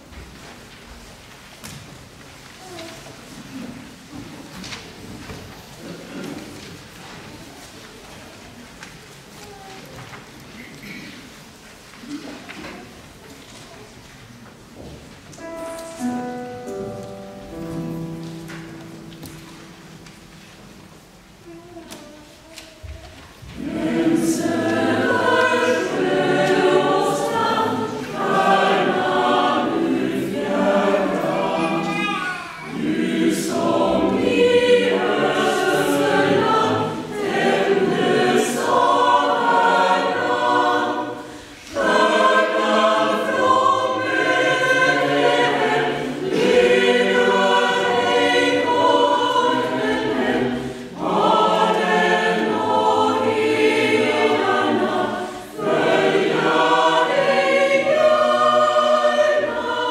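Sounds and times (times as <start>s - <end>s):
choir singing: 15.4s - 21.6s, 23.4s - 59.9s.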